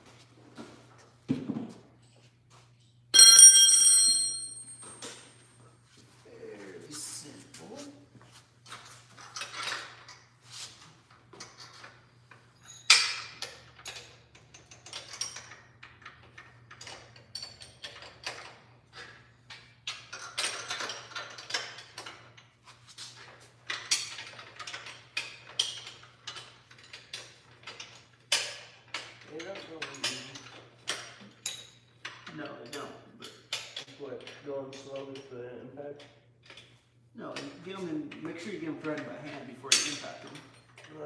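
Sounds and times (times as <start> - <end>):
sharp metal clank: 3.2 - 5.0.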